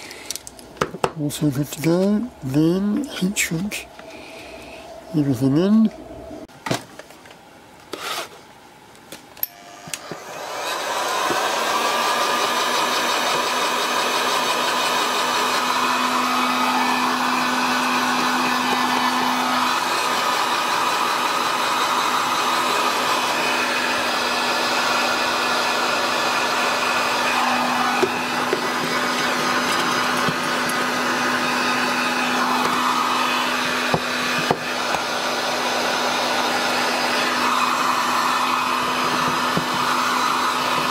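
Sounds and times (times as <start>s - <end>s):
heat gun blowing with hum: 9.4s - 40.9s.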